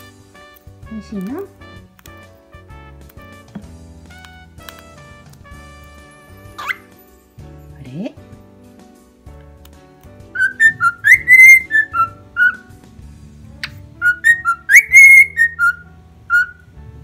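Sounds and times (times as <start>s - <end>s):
soft background music: 0.0s - 17.0s
cockatiel whistling: 6.5s - 6.9s, 10.4s - 12.7s, 14.0s - 16.7s.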